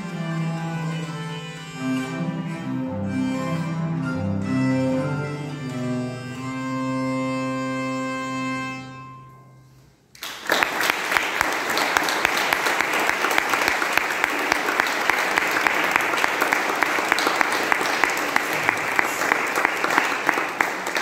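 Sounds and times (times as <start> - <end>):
viola da gamba and hurdy-gurdy: 0.0 - 9.5
audience applause: 10.2 - 21.0.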